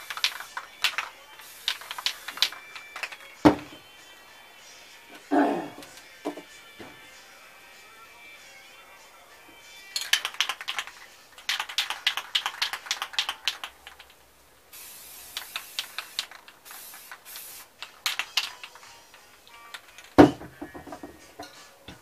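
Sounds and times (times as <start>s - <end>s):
spray paint hissing: 0.0s - 3.7s, 10.0s - 14.0s, 14.7s - 19.1s
spray can ball rattling: 0.0s - 3.8s, 9.9s - 21.1s.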